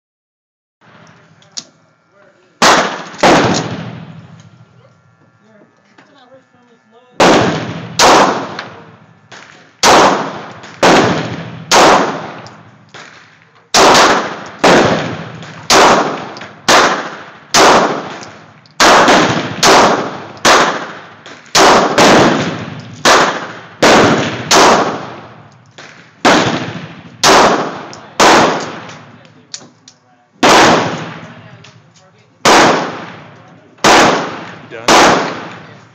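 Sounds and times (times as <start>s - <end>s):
pistol shots echoing: 2.6s - 4.4s, 7.2s - 29.2s, 30.4s - 31.8s, 32.4s - 35.8s.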